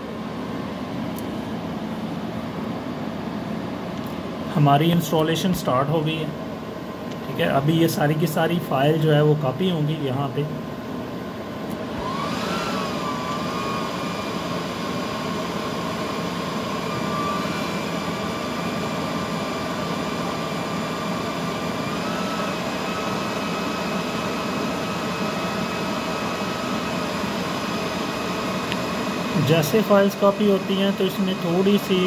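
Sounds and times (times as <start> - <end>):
cooling fans rushing: 0.0 - 32.0
thin high whine: 11.2 - 32.0.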